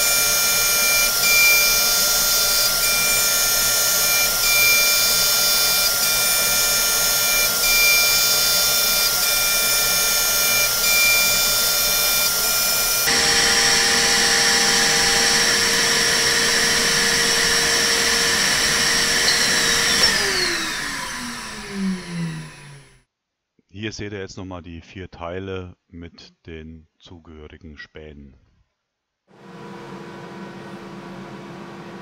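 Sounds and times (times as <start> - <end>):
end mill cutting steel: 0.0 - 23.0
spindle whining: 0.0 - 23.0.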